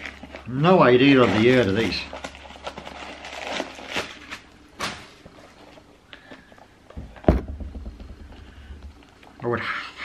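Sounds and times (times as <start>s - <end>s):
sharp thump: 7.0s - 9.0s.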